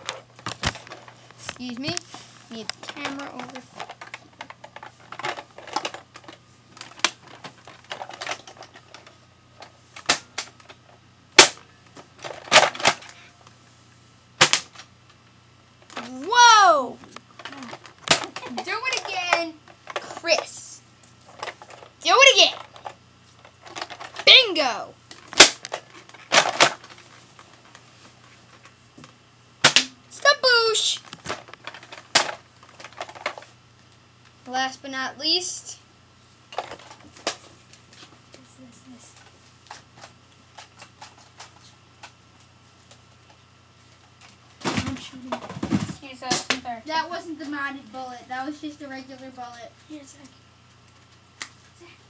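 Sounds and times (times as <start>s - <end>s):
toy blaster firing snap: 11.4s - 11.6s
person shouting: 16.1s - 17.0s
sharp plastic snaps: 25.1s - 26.8s.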